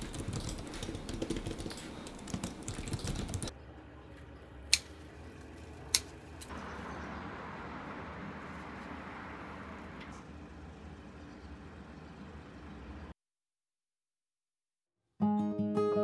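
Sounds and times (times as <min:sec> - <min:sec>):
typing on computer keyboard: 0:00.0 - 0:03.5
garden scissors snipping: 0:05.9 - 0:06.5.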